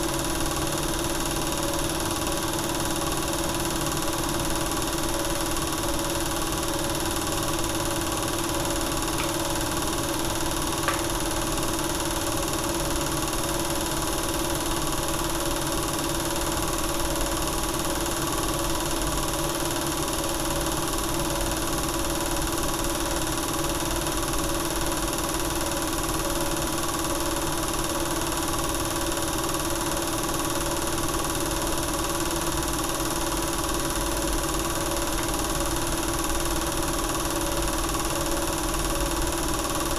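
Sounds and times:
film projector whirring: 0.0 - 39.9
small click: 10.8 - 11.1.

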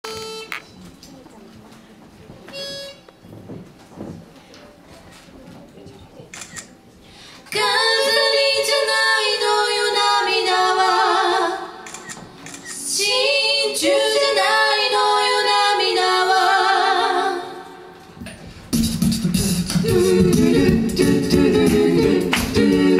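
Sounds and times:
a cappella group singing: 7.4 - 11.9, 12.7 - 18.0, 18.8 - 22.9.

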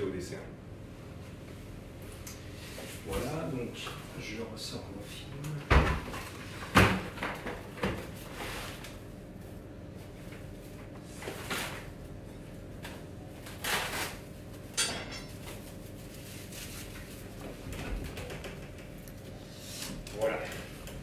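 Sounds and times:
plastic film rustling: 12.7 - 14.7, 15.4 - 17.6.

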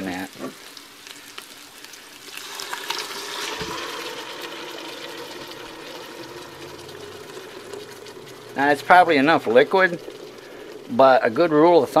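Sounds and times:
sauce pouring and hissing in hot pot: 0.0 - 12.0.

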